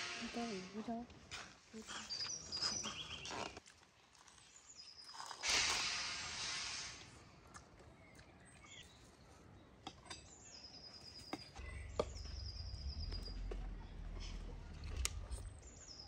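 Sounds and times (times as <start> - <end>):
low rumble: 11.6 - 16.0.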